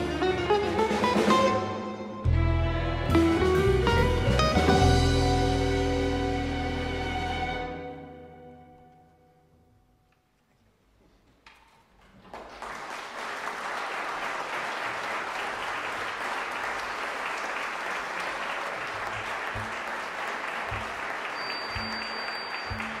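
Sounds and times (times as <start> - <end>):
audience applauding: 12.2 - 23.0.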